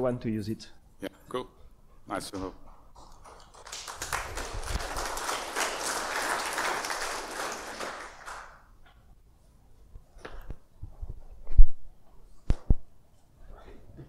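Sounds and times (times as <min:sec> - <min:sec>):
audience applause: 0:03.0 - 0:08.7.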